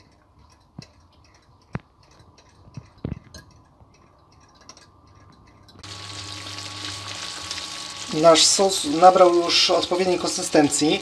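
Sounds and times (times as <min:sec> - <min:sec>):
spoon stirring in glass cup: 0:00.0 - 0:05.9.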